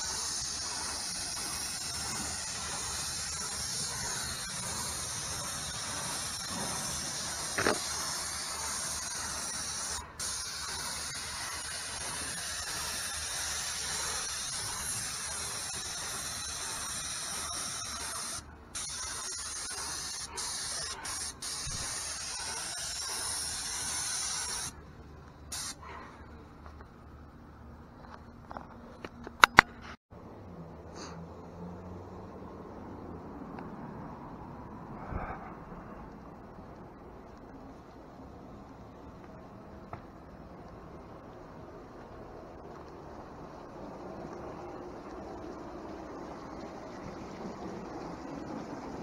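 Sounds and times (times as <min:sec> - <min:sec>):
paint sprayer hissing: 0:00.0 - 0:24.8, 0:25.5 - 0:25.8.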